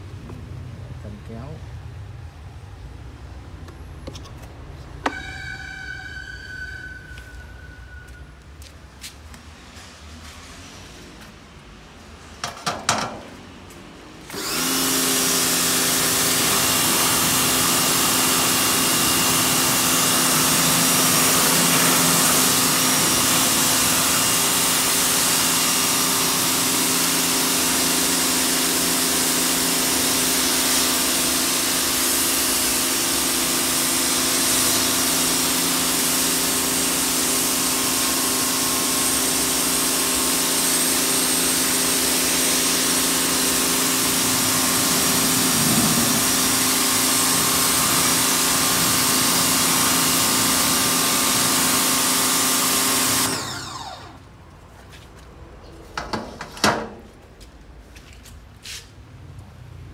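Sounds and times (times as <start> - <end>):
pressure washer motor hum: 5.0 - 6.8, 12.3 - 13.5, 14.2 - 54.3
water jet hissing on concrete: 14.4 - 53.3.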